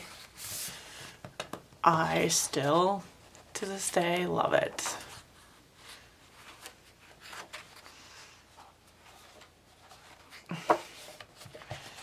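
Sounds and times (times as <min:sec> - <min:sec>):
paper pages rustling: 0:05.0 - 0:12.0.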